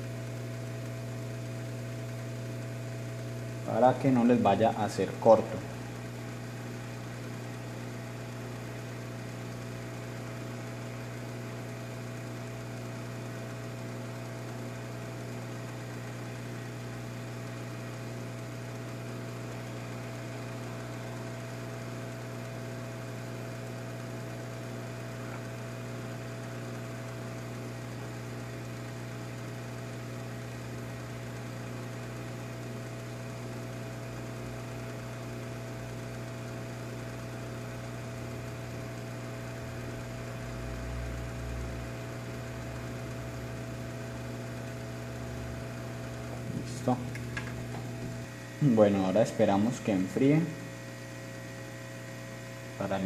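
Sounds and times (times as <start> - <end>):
low electrical hum: 0.0 - 53.0
hot air station rushing air: 45.8 - 50.9.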